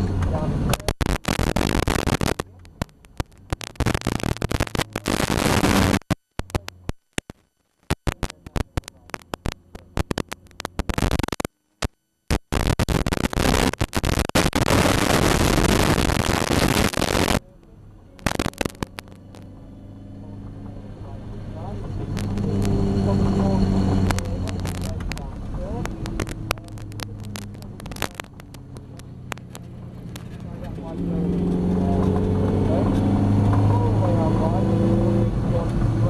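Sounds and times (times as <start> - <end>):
faint car engine: 0.0 - 7.0, 17.3 - 36.0
harsh noise: 0.2 - 35.5.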